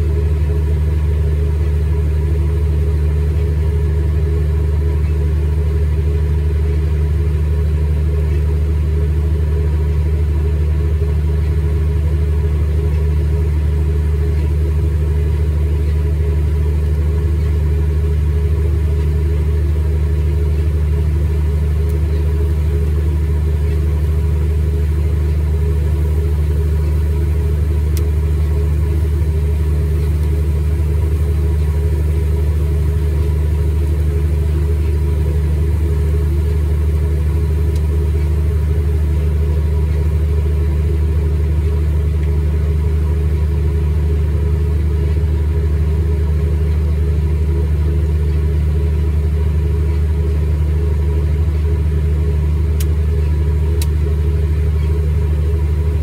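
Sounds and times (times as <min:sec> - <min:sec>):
combine harvester low drone: 0:00.0 - 0:56.0.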